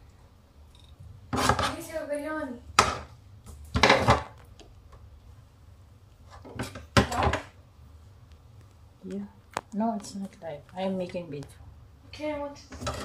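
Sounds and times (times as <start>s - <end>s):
knife knocking and scraping on board: 1.3s - 1.8s.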